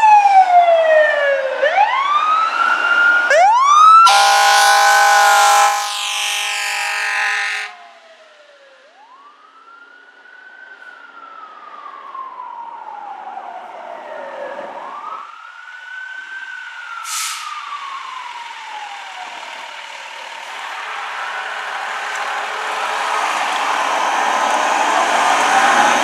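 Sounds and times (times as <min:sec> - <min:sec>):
mechanical fire siren wailing: 0:00.0 - 0:26.0
loud horn blast: 0:04.0 - 0:07.8
air brake hiss: 0:17.0 - 0:17.7.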